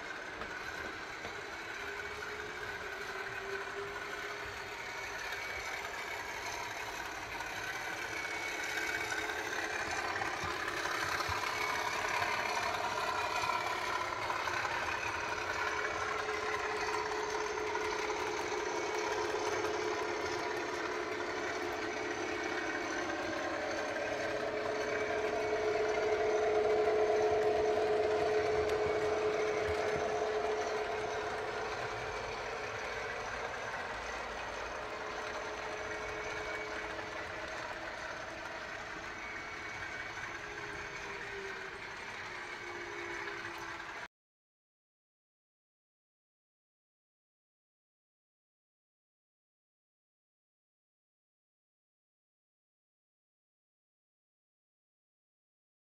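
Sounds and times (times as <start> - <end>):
model train motors humming: 0.0 - 44.1.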